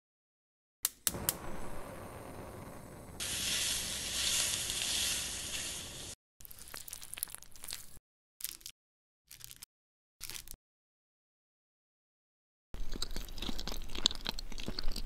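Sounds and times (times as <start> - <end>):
gas stove igniter clicks: 0.8 - 1.8
gas burner hissing: 1.1 - 6.2
meat sizzling in a wok: 3.2 - 6.2.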